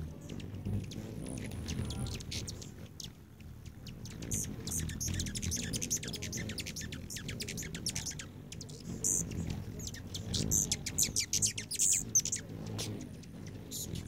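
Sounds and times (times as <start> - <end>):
hummingbird chip notes: 0.0 - 14.0
hummingbird wingbeats hum: 0.0 - 14.0.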